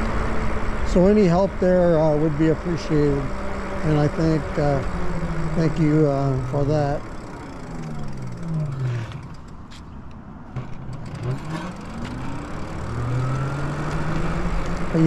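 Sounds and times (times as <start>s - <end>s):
road and wind rumble: 0.0s - 15.0s
electric motor whining: 2.1s - 9.7s, 11.0s - 15.0s.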